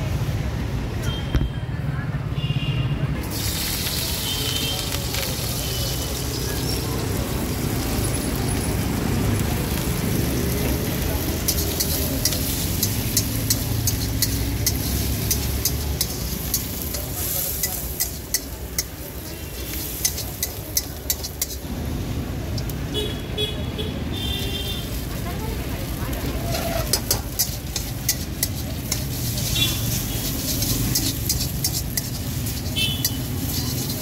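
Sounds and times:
vegetables sizzling in oil: 0:03.2 - 0:23.4, 0:24.0 - 0:34.0
metal spatula scraping wok: 0:10.6 - 0:21.7, 0:24.8 - 0:34.0.

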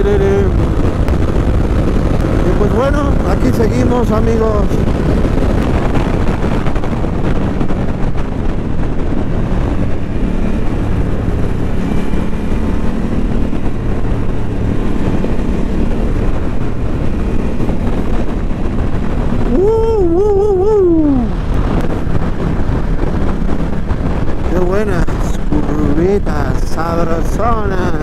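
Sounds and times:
person's voice: 0:00.0 - 0:00.6, 0:02.4 - 0:04.8, 0:19.4 - 0:21.4, 0:24.4 - 0:28.0
motorcycle engine running: 0:00.0 - 0:28.0
wind rushing over microphone: 0:00.0 - 0:28.0.

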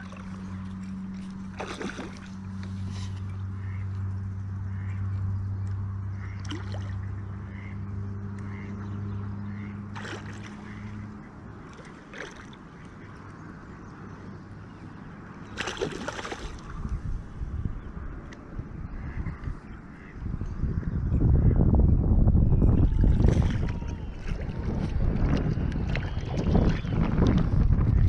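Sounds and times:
fish splashing in water: 0:00.0 - 0:03.2, 0:06.2 - 0:07.0, 0:09.9 - 0:11.0, 0:11.6 - 0:13.1, 0:15.4 - 0:16.9
steady low hum: 0:00.0 - 0:28.0.

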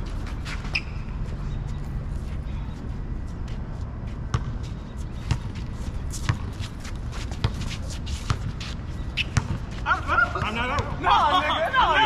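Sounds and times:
basketball bouncing on asphalt: 0:04.2 - 0:11.0.

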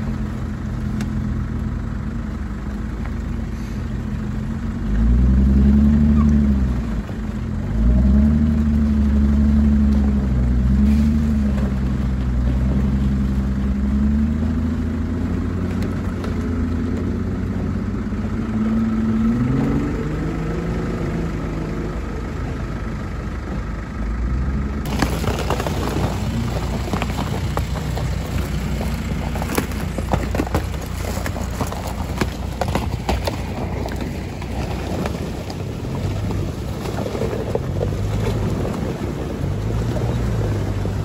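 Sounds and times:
car engine revving: 0:00.0 - 0:41.0
ice crunching under a tyre: 0:24.8 - 0:41.0.

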